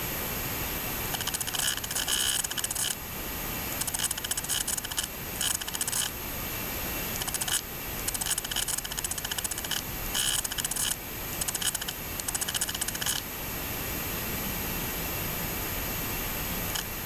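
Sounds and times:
film projector mechanical hiss: 0.0 - 17.0
projector rapid even clicking: 1.1 - 3.0, 3.8 - 6.1, 7.2 - 13.2.

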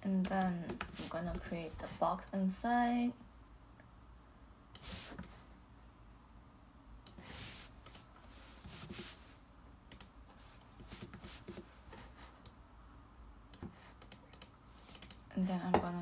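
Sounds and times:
mouse and keyboard clicks: 13.5 - 15.2.

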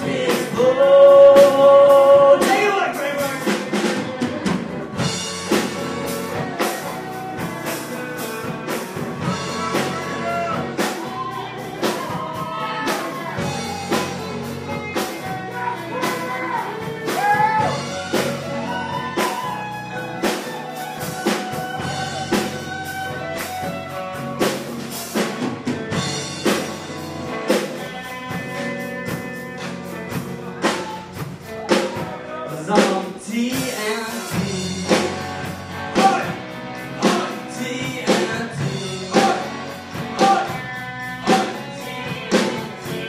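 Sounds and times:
electric guitar lead: 0.0 - 32.9, 33.6 - 43.0
bass guitar: 0.0 - 43.0
drums: 0.0 - 43.0.

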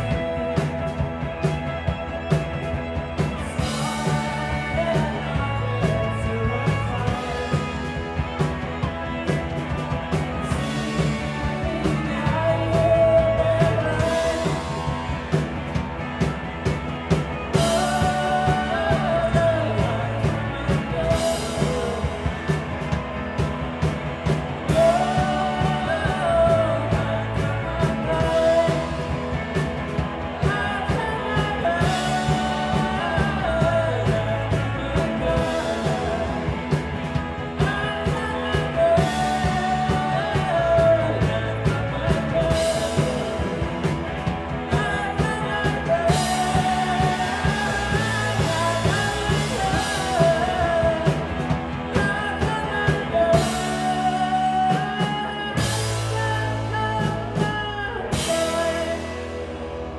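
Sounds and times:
live rock band playing: 0.0 - 59.9
person singing: 0.0 - 59.9.

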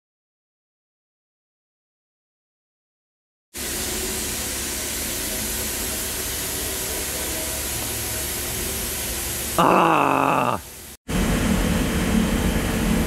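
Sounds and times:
industrial machinery hiss and rumble: 3.6 - 13.0.

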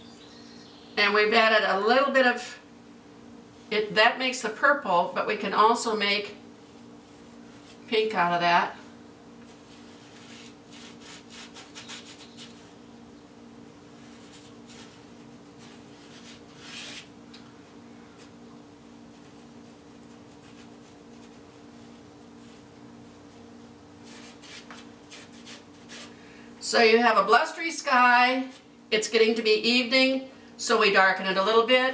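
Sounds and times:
steady low hum: 0.0 - 31.9
paintbrush stroking canvas: 6.6 - 7.9, 9.4 - 12.8, 13.9 - 17.1, 19.1 - 23.4, 24.0 - 26.1.

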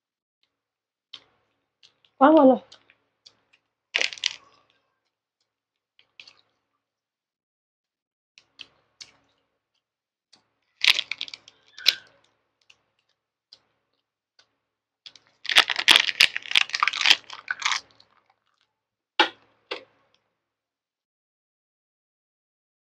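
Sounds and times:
crackly wet chewing: 4.0 - 4.8, 10.8 - 12.0, 15.5 - 18.7.

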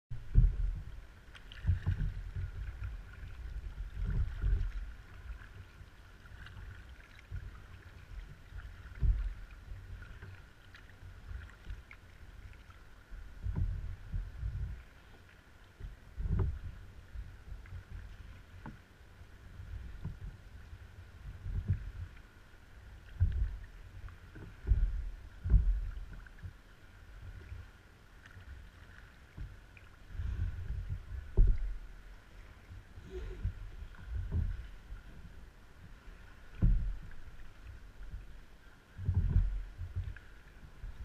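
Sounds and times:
paddle strokes: 0.1 - 41.0
water splashing around kayak: 0.1 - 41.0.

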